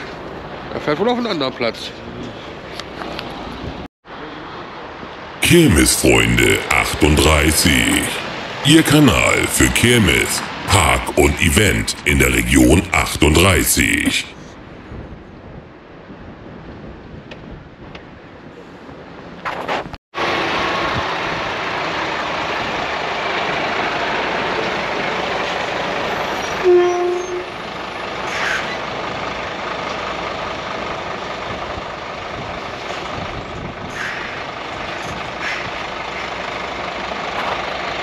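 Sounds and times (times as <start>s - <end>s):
heavy truck running: 5.4s - 14.2s, 20.2s - 38.0s.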